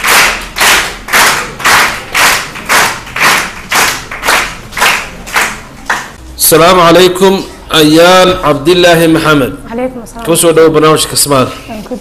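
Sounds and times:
hands clapping: 0:00.0 - 0:06.2.

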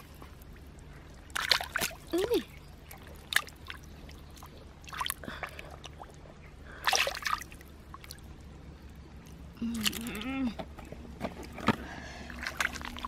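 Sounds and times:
hands splashing in muddy water: 0:01.3 - 0:06.0, 0:06.8 - 0:08.2, 0:12.3 - 0:13.0.

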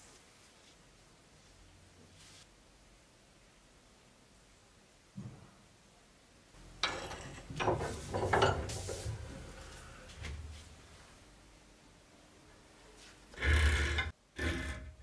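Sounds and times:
metal vise clicking and clanking: 0:06.8 - 0:09.0.

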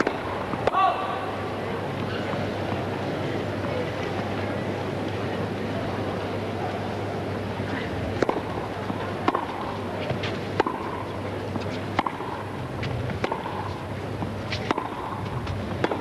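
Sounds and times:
racket hitting tennis ball: 0:00.0 - 0:01.3, 0:08.2 - 0:16.0.

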